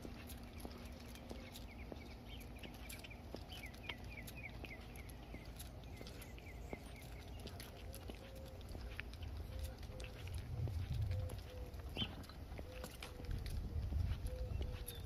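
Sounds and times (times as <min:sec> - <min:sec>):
bird chirping: 0:00.0 - 0:15.0
footsteps on paved path: 0:00.0 - 0:15.0
low rumble: 0:09.2 - 0:12.4.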